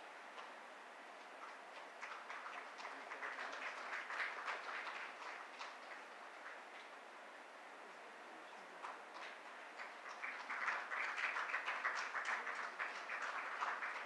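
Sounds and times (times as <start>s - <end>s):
audience applause: 1.5s - 6.9s, 8.8s - 14.0s.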